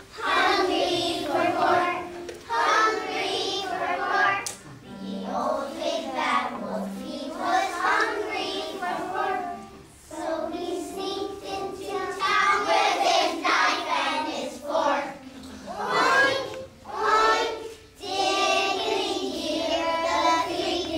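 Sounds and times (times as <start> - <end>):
children singing together: 0.0 - 20.9.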